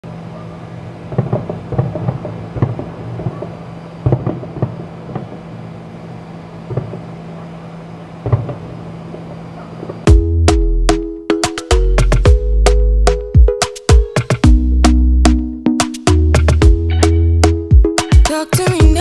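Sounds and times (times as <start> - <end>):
distant fireworks booming: 0.9 - 10.1
low hum: 16.6 - 17.7.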